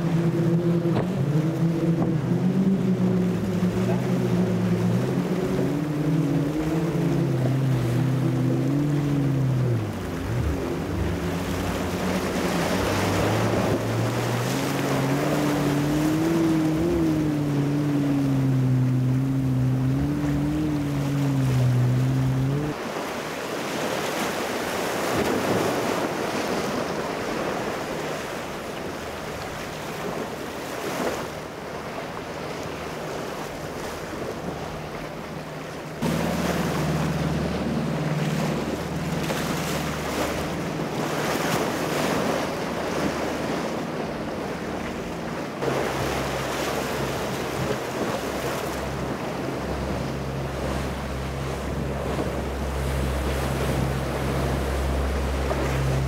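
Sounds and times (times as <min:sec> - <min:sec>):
wind buffeting microphone: 0:00.0 - 0:22.8
boat engines droning: 0:00.0 - 0:56.0
surf: 0:00.0 - 0:56.0.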